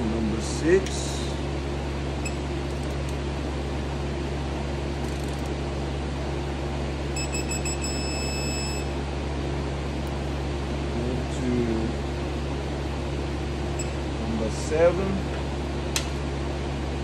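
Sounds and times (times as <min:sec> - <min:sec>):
low machine hum: 0:00.0 - 0:17.0
high-pitched electronic beep: 0:07.2 - 0:08.9.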